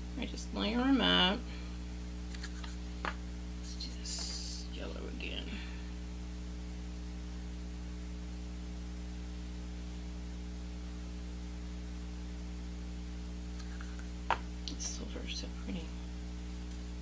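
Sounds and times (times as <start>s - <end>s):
constant hiss: 0.0s - 7.9s
electrical mains hum: 0.0s - 17.0s.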